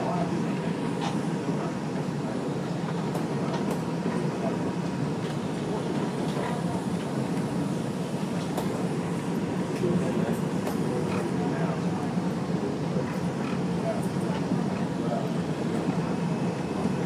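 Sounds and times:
subway car rumble: 0:00.0 - 0:17.0.

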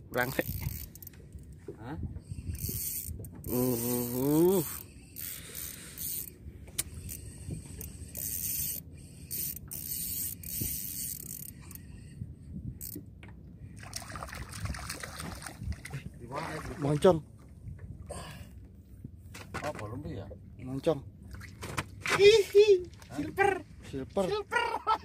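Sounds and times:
fishing reel whirring: 0:00.1 - 0:01.1, 0:02.3 - 0:12.0.

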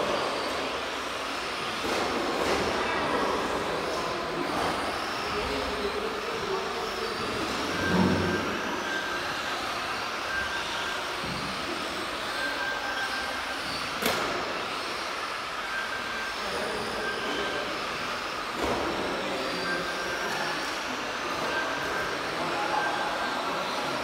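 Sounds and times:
rc car motors whining: 0:00.0 - 0:24.0
short beeps: 0:07.6 - 0:09.2.

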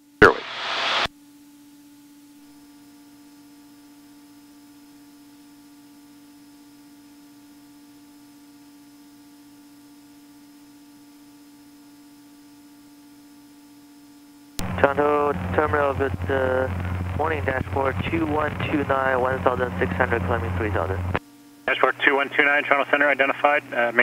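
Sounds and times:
propeller plane engine hum: 0:14.6 - 0:24.0.

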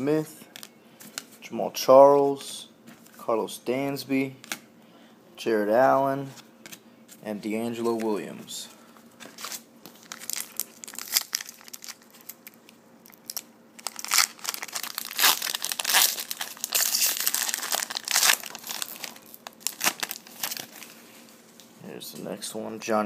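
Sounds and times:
foil wrapper crinkling: 0:09.3 - 0:21.0.

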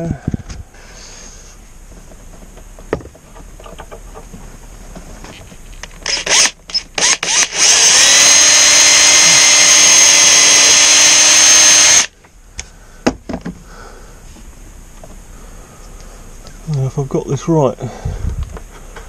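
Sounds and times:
cordless drill running: 0:06.0 - 0:12.1.

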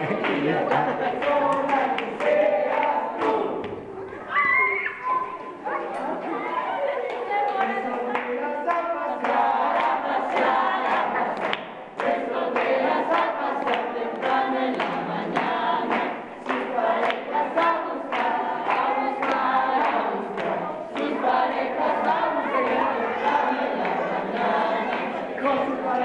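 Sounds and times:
hand claps: 0:00.0 - 0:03.8, 0:07.1 - 0:21.4
group singing: 0:00.0 - 0:04.0, 0:06.4 - 0:26.0.

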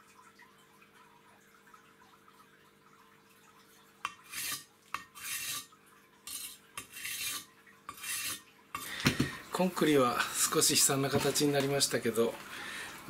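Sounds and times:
knife grinding on concrete block: 0:04.1 - 0:08.9.

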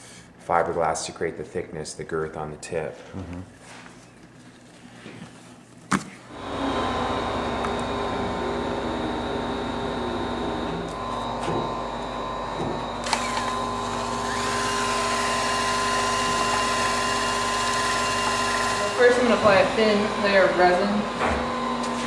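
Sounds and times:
electric drill mixing resin: 0:06.3 - 0:22.0.

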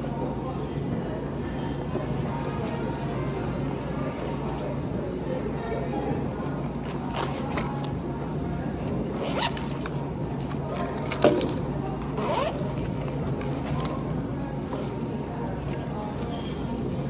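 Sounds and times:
zipper opening and closing: 0:09.1 - 0:10.0, 0:12.0 - 0:13.2.

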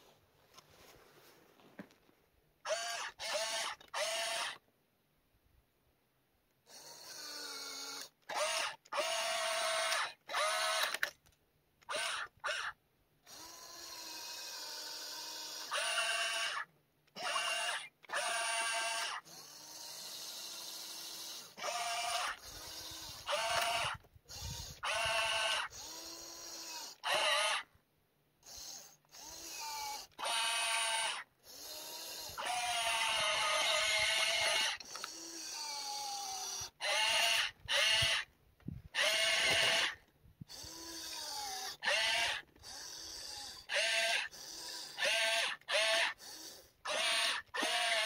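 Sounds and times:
small electric motors whining: 0:02.6 - 0:04.6, 0:06.6 - 0:11.2, 0:11.8 - 0:27.8, 0:28.4 - 0:48.0.

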